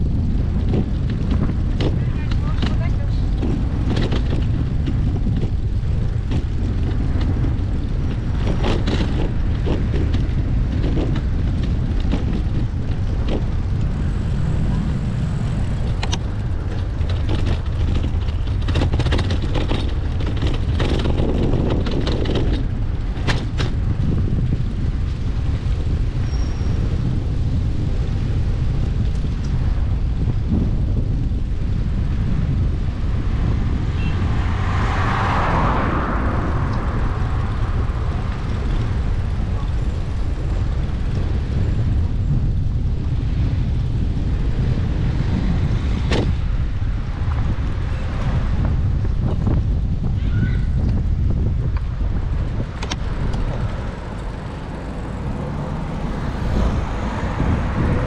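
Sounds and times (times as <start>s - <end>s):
bicycle clicks and knocks: 0.0s - 14.6s, 15.2s - 27.0s, 50.8s - 57.8s
rolling road noise: 0.0s - 58.0s
wind buffeting microphone: 0.0s - 58.0s.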